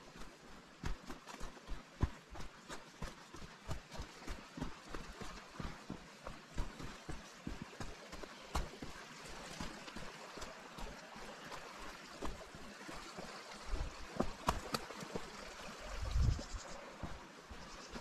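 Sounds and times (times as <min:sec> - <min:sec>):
stream rushing: 0:00.0 - 0:18.0
footsteps scuffing and crunching: 0:06.6 - 0:18.0.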